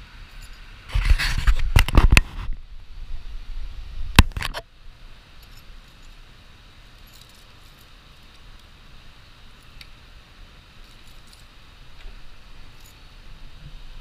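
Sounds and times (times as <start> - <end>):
keys jangling: 7.0 - 8.4, 10.8 - 11.5.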